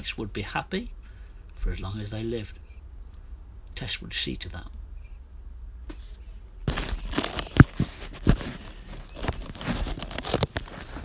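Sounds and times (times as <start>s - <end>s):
crinkling rustling with clicks: 6.6s - 11.0s.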